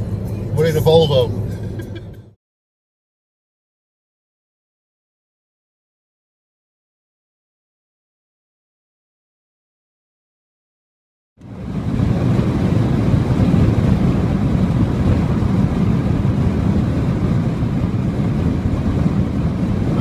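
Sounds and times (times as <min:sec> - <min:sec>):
car road and wind noise: 0:00.0 - 0:02.4, 0:11.4 - 0:20.0.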